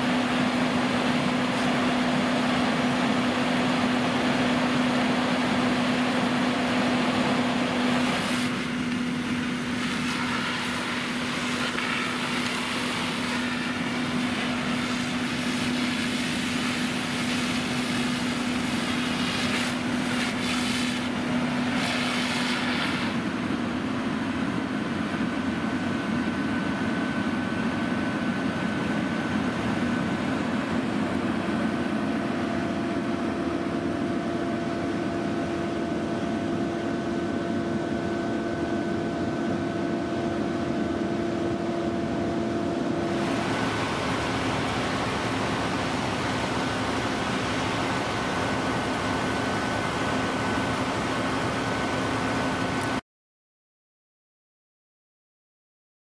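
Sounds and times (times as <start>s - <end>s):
diesel engines humming: 0.0s - 37.5s, 42.8s - 53.0s.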